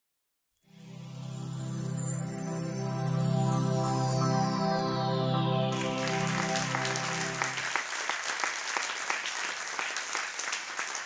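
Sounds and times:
intro music: 0.7 - 7.9
audience applause: 5.7 - 11.0.

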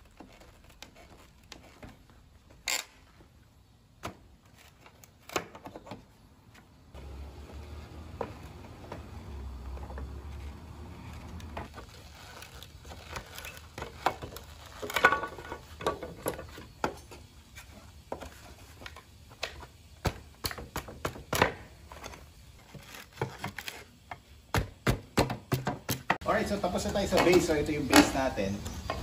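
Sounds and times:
wood creaking: 4.0 - 16.6.

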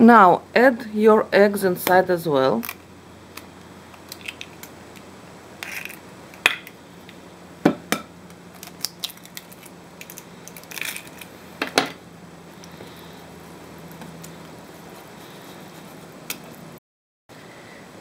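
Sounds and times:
eggshells crackling: 8.5 - 11.4.

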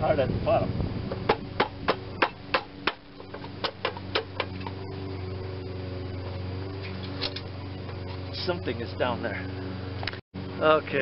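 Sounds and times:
steady low hum: 0.0 - 11.0
metal fan shroud knocking: 1.1 - 4.8.

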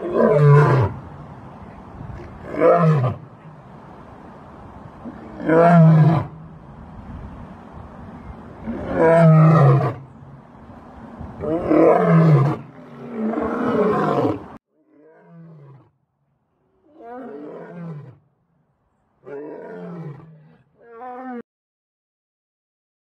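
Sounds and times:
lion roaring: 8.6 - 10.0, 11.4 - 15.9, 19.3 - 21.4.

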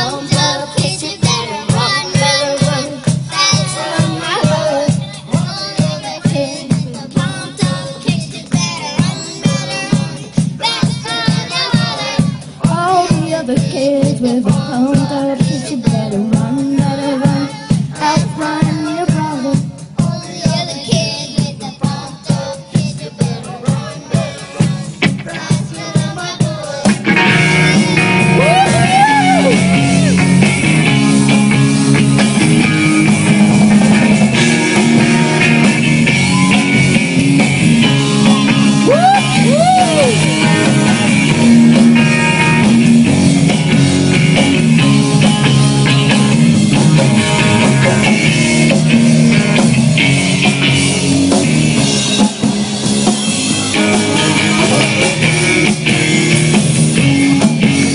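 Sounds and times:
drum kit: 0.0 - 57.9
live rock band playing: 0.0 - 57.9
electric guitar: 24.2 - 57.9.

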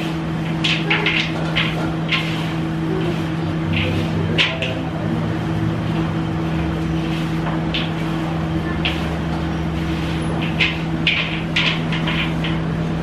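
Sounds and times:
hands scraping in metal bowl: 0.0 - 4.8, 8.8 - 12.7
steady machine hum: 0.0 - 13.0.

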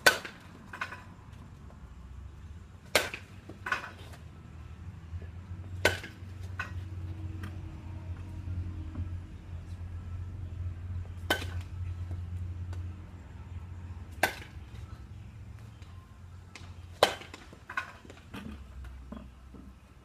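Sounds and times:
baseball bat cracking balls: 0.0 - 1.2, 2.8 - 4.2, 5.6 - 7.6, 11.1 - 12.9, 14.1 - 14.8, 16.5 - 19.6.

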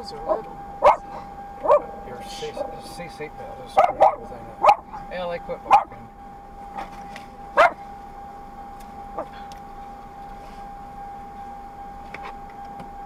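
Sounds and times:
thin steady high tone: 0.0 - 12.8
faint road noise: 0.0 - 13.0
dog barking sharply: 0.3 - 1.9, 3.8 - 4.9, 5.7 - 5.9, 7.6 - 7.8.

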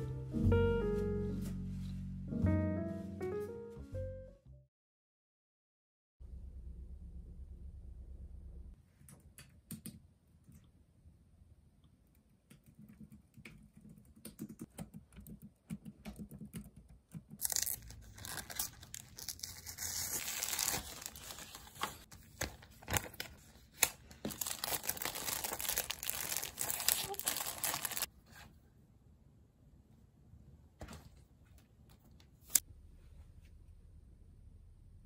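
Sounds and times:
paper envelope tearing: 17.4 - 28.1
paper crinkling and rustling: 17.4 - 28.4.

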